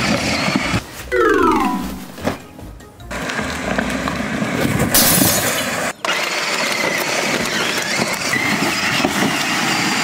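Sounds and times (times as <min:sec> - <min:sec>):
toy truck motors grinding: 0:06.0 - 0:10.0.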